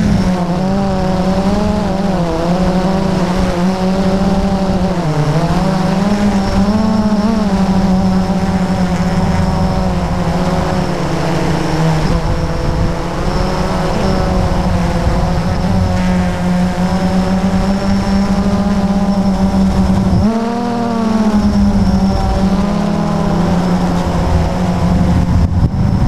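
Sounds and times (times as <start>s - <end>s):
drone motors whining: 0.0s - 26.0s
wind rush on microphone: 0.0s - 26.0s.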